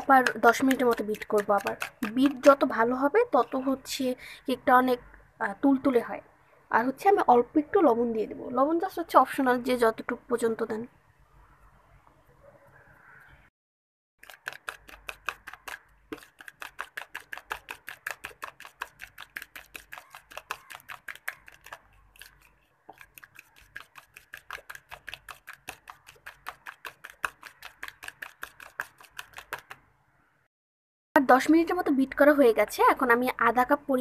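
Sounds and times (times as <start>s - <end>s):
fork clicking against bowl: 0.2s - 2.3s.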